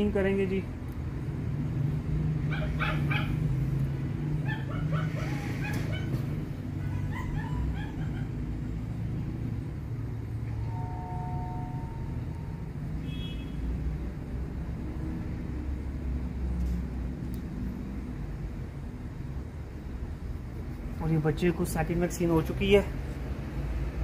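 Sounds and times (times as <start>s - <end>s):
puppy yipping and whimpering: 2.5s - 3.5s, 4.4s - 8.6s
puppy whining: 4.4s - 8.8s.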